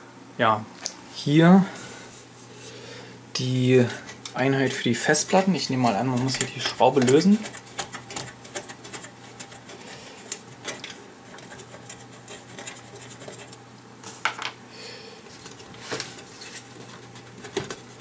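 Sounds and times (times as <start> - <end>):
small scratches and clicks of parts: 4.0 - 14.2, 15.3 - 18.0
metal cage scraping: 5.1 - 13.6.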